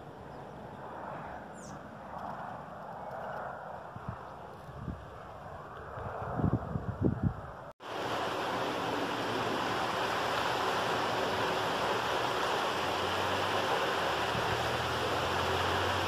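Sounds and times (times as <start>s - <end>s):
steady rain falling: 7.8s - 16.0s.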